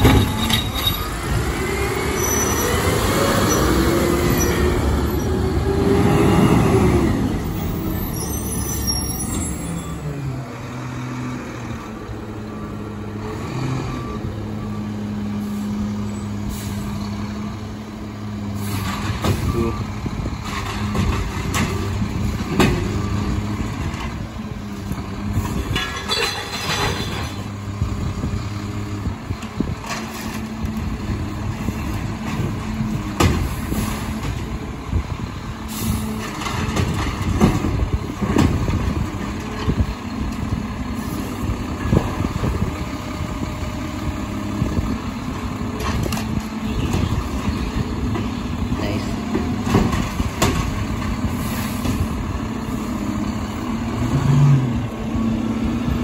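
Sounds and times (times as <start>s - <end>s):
bangs and knocks from carts: 0.0s - 0.8s, 25.6s - 27.5s, 32.2s - 34.4s, 36.2s - 39.8s, 49.2s - 51.2s.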